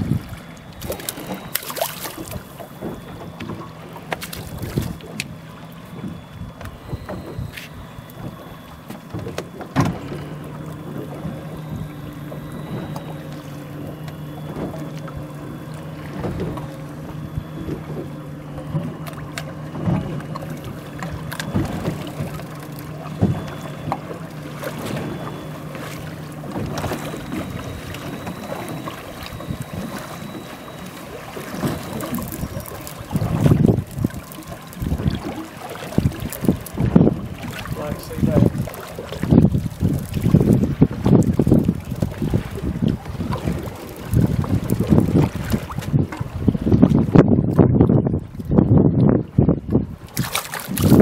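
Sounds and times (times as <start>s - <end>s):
wind on microphone: 0.0s - 1.5s, 4.4s - 8.6s, 26.4s - 51.0s
boat engine hum: 0.0s - 51.0s
water splashing against hull: 0.0s - 51.0s.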